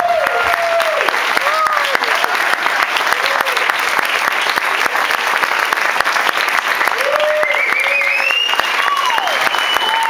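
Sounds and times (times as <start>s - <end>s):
whooping cheers: 0.0s - 3.8s, 6.8s - 10.0s
crowd applauding: 0.0s - 10.0s.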